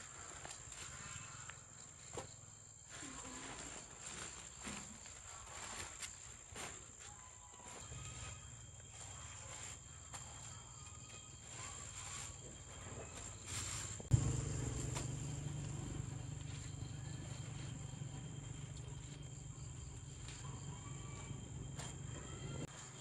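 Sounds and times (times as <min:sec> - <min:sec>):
crickets trilling: 0:00.0 - 0:23.0
low steady rumble: 0:14.0 - 0:20.8.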